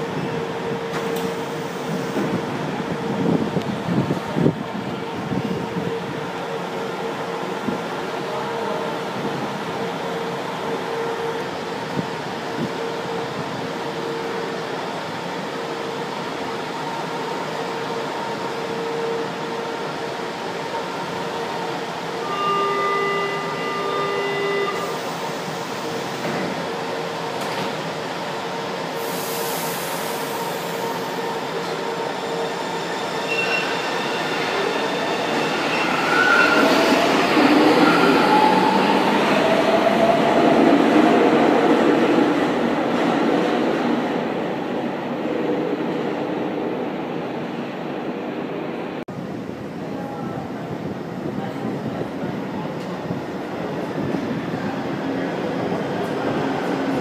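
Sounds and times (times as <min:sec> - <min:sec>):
train arriving with wheel squeal: 0:00.0 - 0:47.7, 0:51.9 - 0:57.0
train running hum: 0:00.0 - 0:57.0
air hiss: 0:29.0 - 0:30.9.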